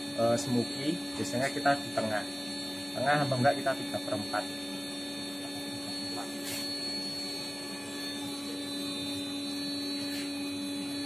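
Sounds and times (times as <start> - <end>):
coffee roaster electric hum: 0.0 - 11.0.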